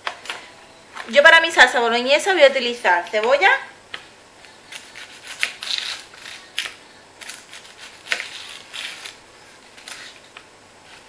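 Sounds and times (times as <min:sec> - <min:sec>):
onion skin crackling: 0:04.5 - 0:11.0.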